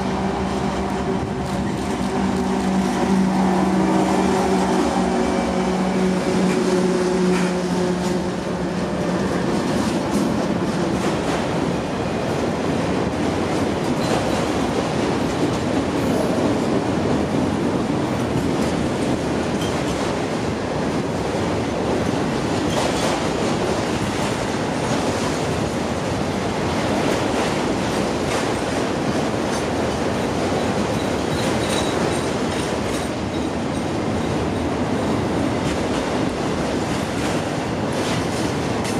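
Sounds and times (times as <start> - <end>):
locomotive engine drone: 0.0 - 10.7
train wheels rumbling and clattering: 0.0 - 38.9.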